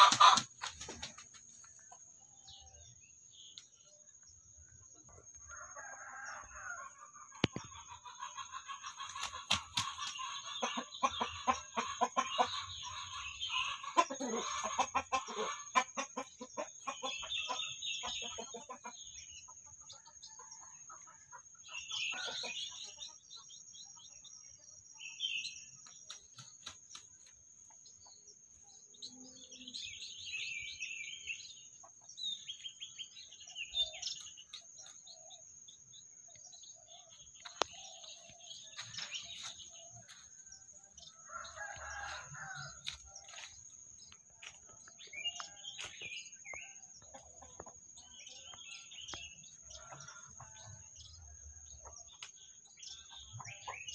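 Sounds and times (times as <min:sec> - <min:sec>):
chickens squawking: 0:00.0 - 0:01.2, 0:05.8 - 0:19.2
chickens clucking: 0:00.0 - 0:51.0, 0:51.6 - 0:53.9.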